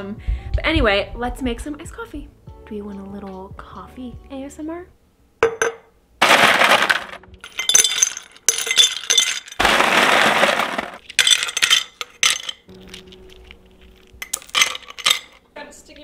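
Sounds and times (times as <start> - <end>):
ice rattling in bin: 6.2 - 7.2, 8.7 - 11.8
ice cubes clinking into glass jar: 6.2 - 13.5, 14.2 - 15.4.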